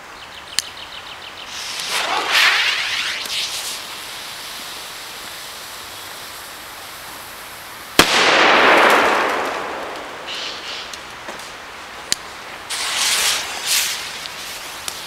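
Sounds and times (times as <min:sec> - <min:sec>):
steady low hiss: 0:00.0 - 0:15.0
firecracker bang: 0:08.0 - 0:11.5, 0:12.7 - 0:14.0.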